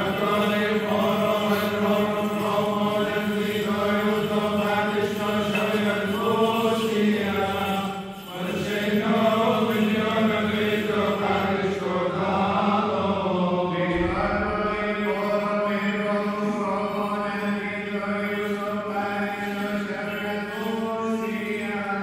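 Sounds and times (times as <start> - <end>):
men chanting a hymn: 0.0 - 22.0.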